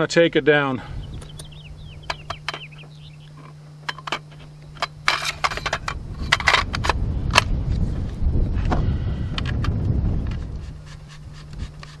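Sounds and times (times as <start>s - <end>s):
shotgun metal parts clicking: 3.3s - 7.5s
metal sliding and scraping: 3.4s - 7.0s.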